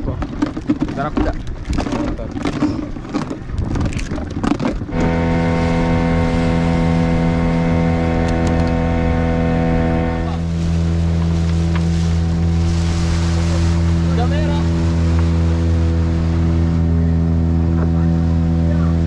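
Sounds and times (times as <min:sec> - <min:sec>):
boat motor running: 0:00.0 - 0:19.0
people talking: 0:00.9 - 0:02.9, 0:10.1 - 0:10.5, 0:13.4 - 0:14.8, 0:16.9 - 0:19.0.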